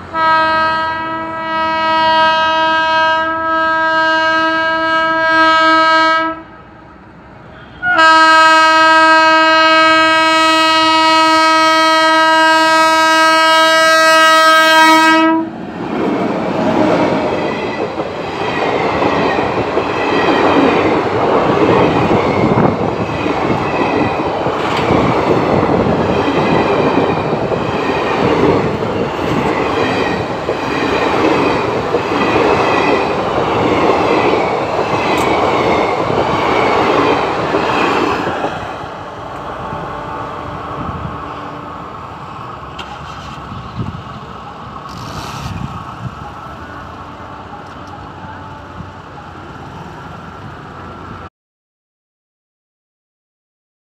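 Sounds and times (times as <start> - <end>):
train coaches rumbling past: 0.0 - 51.3
locomotive horn blast: 0.1 - 6.6, 7.5 - 15.6, 39.3 - 42.0, 46.3 - 49.0.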